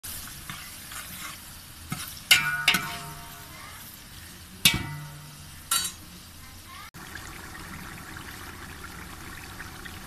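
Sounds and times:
onions sizzling in hot oil: 0.0s - 10.0s
metal spoon clanking on pot: 2.3s - 3.5s, 4.6s - 6.0s.

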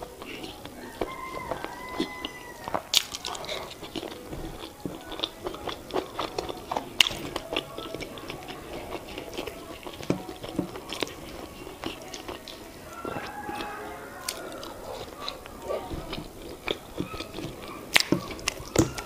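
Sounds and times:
person chewing with wet mouth clicks: 0.0s - 19.0s.

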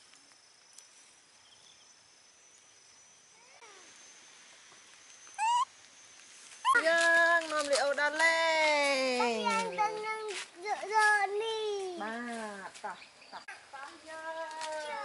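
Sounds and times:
faint high whine: 0.0s - 6.8s
baby monkey squealing: 5.4s - 5.6s.

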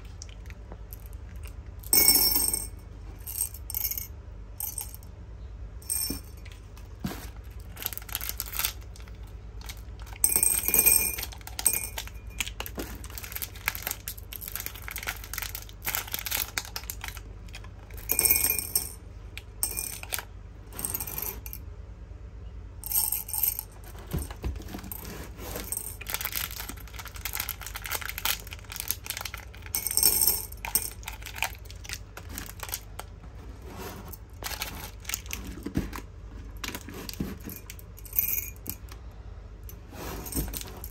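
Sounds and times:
hard candies clinking: 5.8s - 21.6s, 22.8s - 33.2s, 34.2s - 39.0s.

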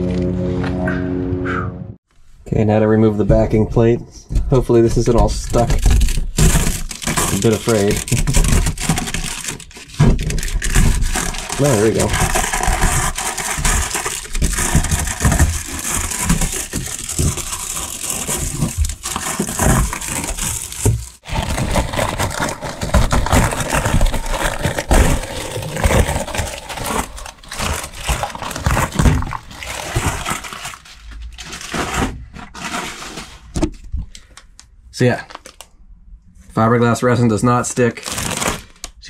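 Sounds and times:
paper crackling and scraping: 4.9s - 33.6s, 38.0s - 38.9s.

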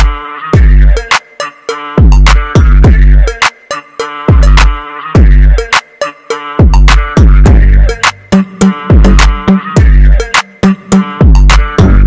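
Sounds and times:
electronic hip-hop beat: 0.0s - 12.0s
drum machine hits: 2.0s - 3.1s, 4.3s - 5.4s, 6.6s - 8.2s, 8.9s - 10.5s, 11.2s - 12.0s
deep sliding bass notes: 6.6s - 8.0s, 8.9s - 10.2s, 11.2s - 12.0s.

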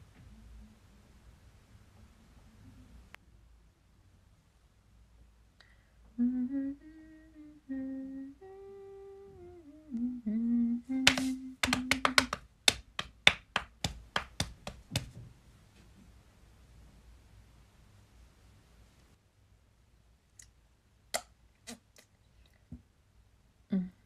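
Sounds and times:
woman humming a tune: 6.2s - 12.2s, 23.7s - 24.0s.

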